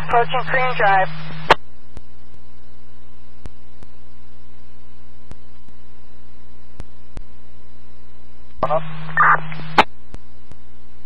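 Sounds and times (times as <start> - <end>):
low hum and hiss: 0.0 - 11.0
low steady radio tone: 0.0 - 11.0
radio click: 8.6 - 10.6.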